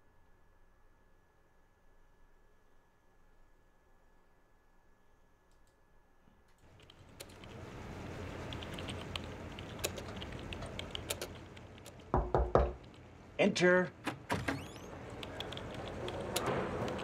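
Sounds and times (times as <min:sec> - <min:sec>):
computer keyboard typing: 0:06.7 - 0:13.1, 0:15.0 - 0:17.0.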